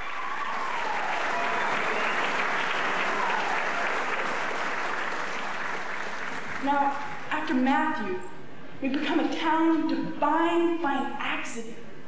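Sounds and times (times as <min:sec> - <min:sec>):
audience applauding: 0:00.0 - 0:07.3.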